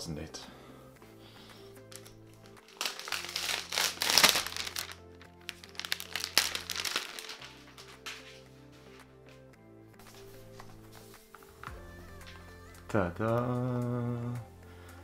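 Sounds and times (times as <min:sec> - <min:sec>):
background music: 0:00.0 - 0:15.0
plastic wrap crinkling: 0:01.9 - 0:08.4.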